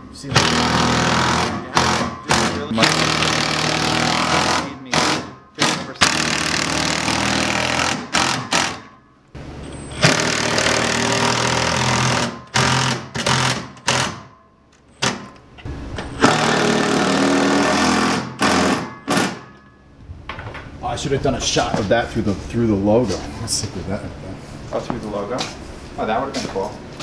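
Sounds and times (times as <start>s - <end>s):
impact driver hammering screws: 0.4s - 9.0s, 10.0s - 14.3s, 16.2s - 19.6s.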